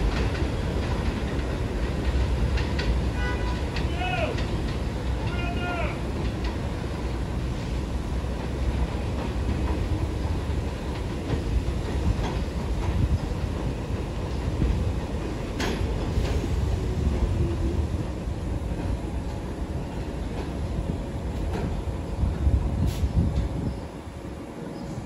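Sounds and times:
train wheels rumbling on rails: 0:00.0 - 0:25.0.

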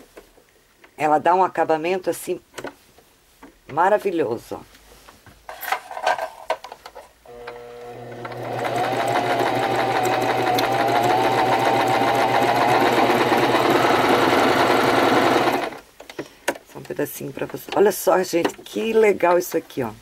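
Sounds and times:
sewing machine stitching: 0:07.3 - 0:15.8.

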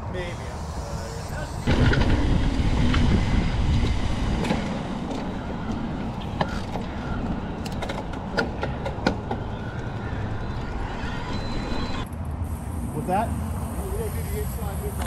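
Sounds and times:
bike clicks and rattles: 0:01.7 - 0:10.8.

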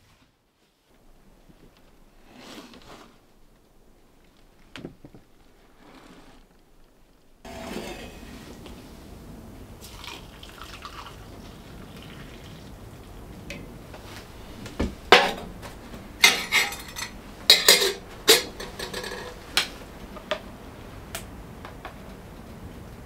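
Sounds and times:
metal cookware clinking: 0:07.5 - 0:08.5, 0:15.1 - 0:15.6, 0:16.2 - 0:19.5.

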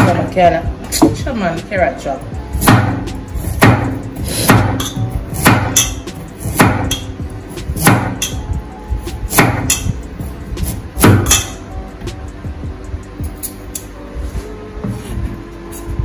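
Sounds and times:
knife chopping on cutting board: 0:02.6 - 0:07.0, 0:07.8 - 0:08.4, 0:09.3 - 0:09.9.

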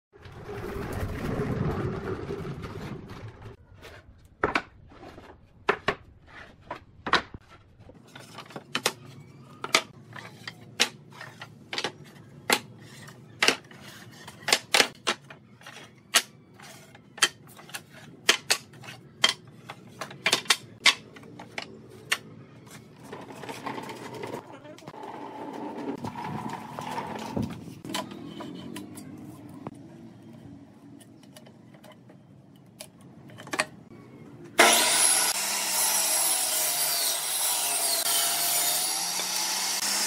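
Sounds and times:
wooden boards knocking together: 0:17.2 - 0:22.2.

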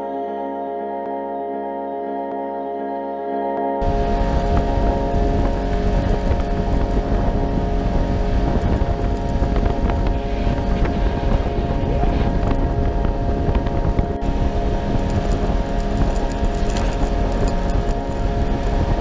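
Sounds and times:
vehicle engine running: 0:03.8 - 0:19.0
wind buffeting microphone: 0:03.8 - 0:19.0.

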